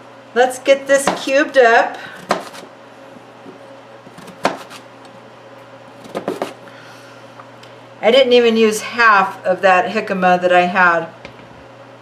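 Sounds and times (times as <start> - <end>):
steady low hum: 0.0 - 12.0
knife chopping on cutting board: 1.0 - 1.3, 2.2 - 2.7, 4.1 - 4.8, 6.0 - 6.6.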